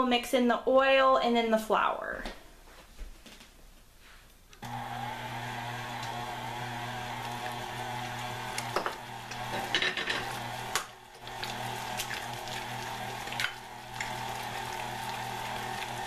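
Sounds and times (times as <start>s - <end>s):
stand mixer motor hum: 4.6s - 16.0s.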